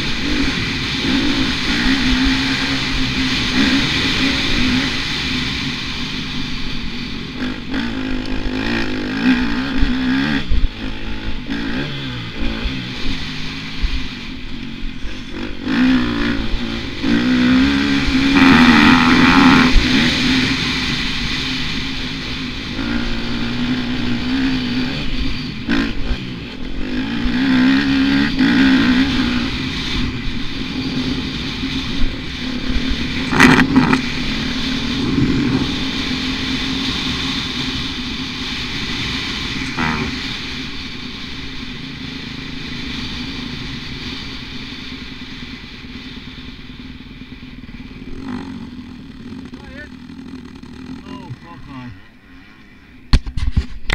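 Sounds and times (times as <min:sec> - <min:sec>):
dirt bike engine revving: 0:00.0 - 0:53.4.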